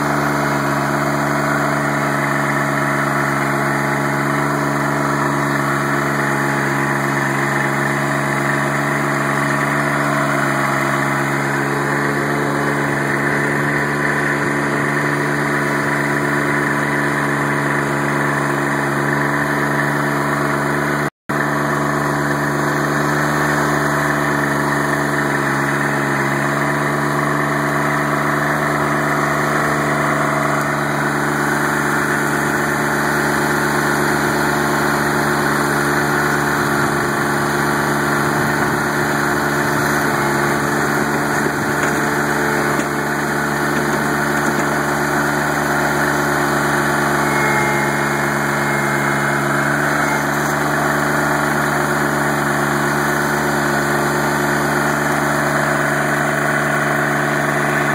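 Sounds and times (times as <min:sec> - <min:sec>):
diesel engine running steadily: 0:00.0 - 0:57.9.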